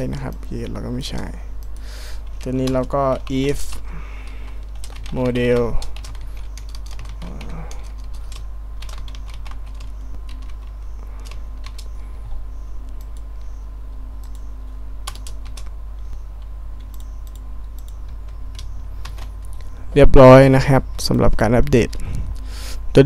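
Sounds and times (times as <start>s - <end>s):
computer keyboard typing: 0.0s - 12.0s, 14.2s - 19.7s
steady low hum: 0.0s - 23.0s.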